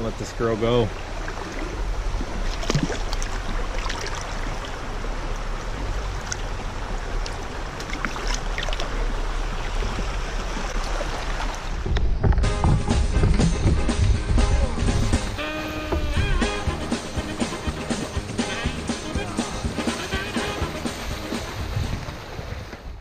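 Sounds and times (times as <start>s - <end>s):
river water rushing over rocks: 0.0s - 12.0s, 15.2s - 22.7s
small water splashes: 0.7s - 12.2s.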